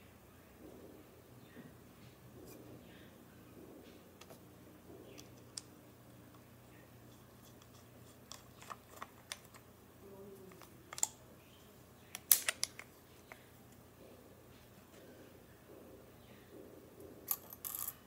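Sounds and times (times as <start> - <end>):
metal gun parts clicking: 12.2 - 12.9.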